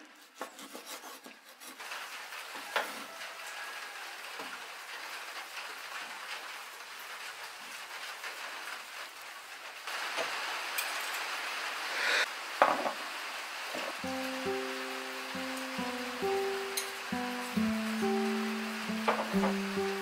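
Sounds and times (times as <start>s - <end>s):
knife cutting raw chicken: 0.0s - 1.8s
short hiss: 11.8s - 12.3s
knock: 19.0s - 19.6s.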